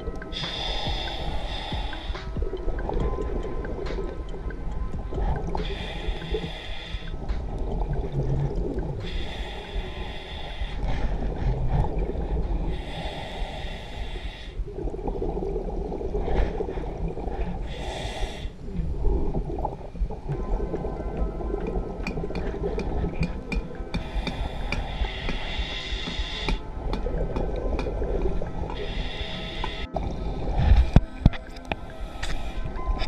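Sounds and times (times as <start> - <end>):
hissing regulator inhalation: 0.3 - 2.6, 5.2 - 14.7, 22.4 - 27.6, 28.6 - 32.8.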